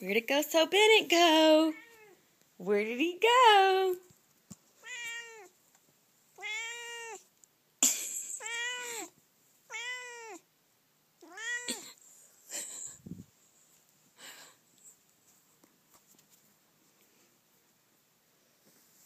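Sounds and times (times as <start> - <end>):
cat meowing: 1.7 - 2.2, 4.8 - 5.6, 6.4 - 7.3, 8.4 - 9.1, 9.7 - 10.4, 11.2 - 11.9.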